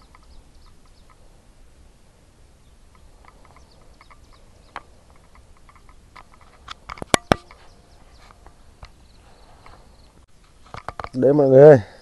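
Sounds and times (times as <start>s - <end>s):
faint chirping calls: 0.0s - 10.3s
sharp clicks: 2.9s - 7.6s.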